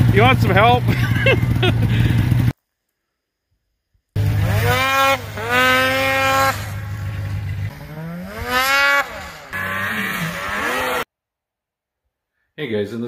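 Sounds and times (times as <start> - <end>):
snowmobile engine revving: 0.0 - 2.5, 4.2 - 11.1.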